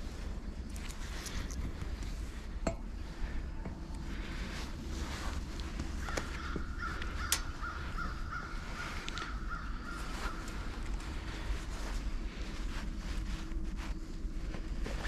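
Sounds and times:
low wind rumble: 0.0s - 15.0s
crow cawing: 5.6s - 11.5s
metal stand clicks: 7.3s - 7.6s.

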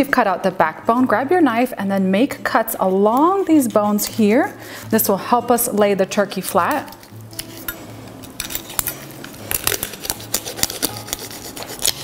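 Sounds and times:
knife cracking bones: 7.0s - 12.0s.

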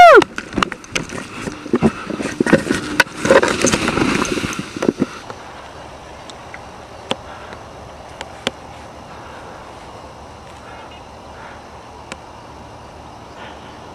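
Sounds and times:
faint steady hiss: 0.0s - 13.9s
microphone handling rustling and knocks: 0.3s - 5.4s.

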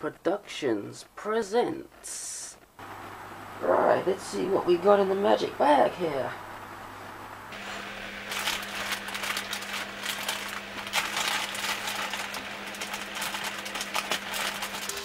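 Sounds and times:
plastic bag crinkling: 7.6s - 15.0s
scissors cutting plastic: 8.3s - 15.0s.

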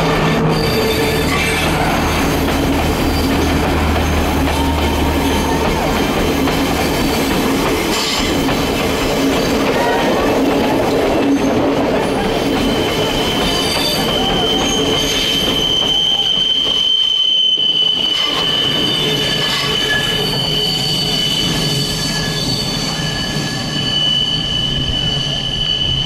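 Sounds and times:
train carriages rumbling: 0.0s - 26.0s
train wheels squealing on rails: 0.0s - 26.0s.

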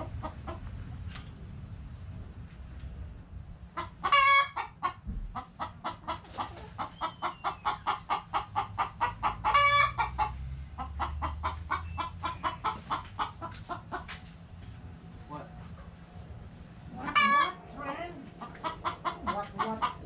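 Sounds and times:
chickens clucking: 0.0s - 1.0s, 3.7s - 20.0s
chicken drawn-out calls: 3.8s - 14.4s, 16.9s - 20.0s.

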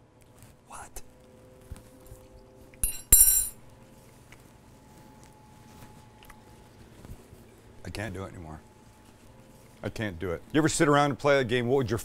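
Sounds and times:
metal fork clinking on surface: 2.8s - 3.6s.

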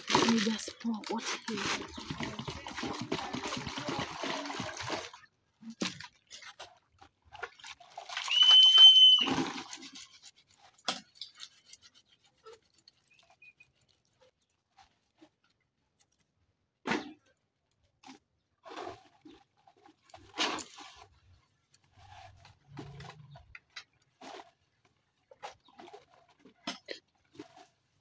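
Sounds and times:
water splashing into plastic basin: 0.0s - 10.1s
small splashes and clicks: 0.0s - 28.0s.

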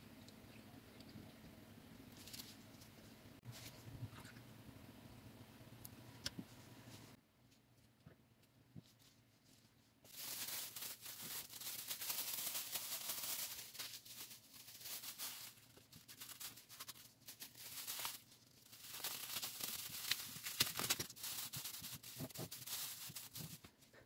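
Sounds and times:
plastic bag crinkling: 10.1s - 23.7s.

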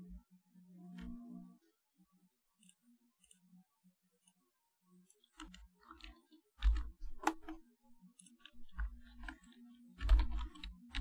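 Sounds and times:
keyboard key clicks: 5.3s - 7.6s, 8.2s - 11.0s.

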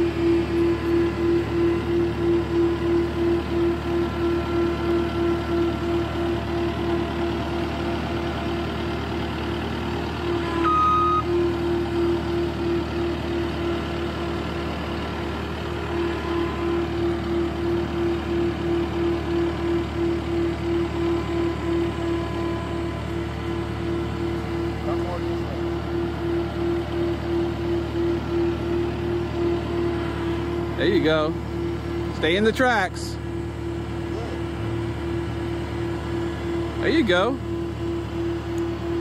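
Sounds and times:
loader diesel engine running: 0.0s - 39.0s
brief higher tone: 10.3s - 11.5s
backup alarm beeping: 10.4s - 11.3s.

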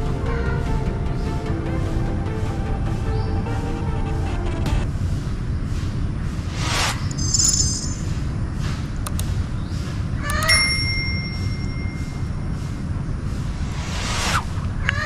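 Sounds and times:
steady low rumble: 0.0s - 10.2s, 11.2s - 15.0s
bell ding ringing: 7.2s - 8.2s, 10.4s - 12.4s
click: 9.0s - 9.3s
short high chime: 10.5s - 12.4s.

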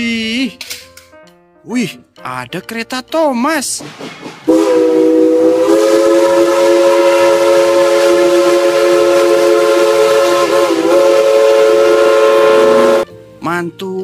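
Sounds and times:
steam locomotive chime whistle: 4.5s - 13.1s.

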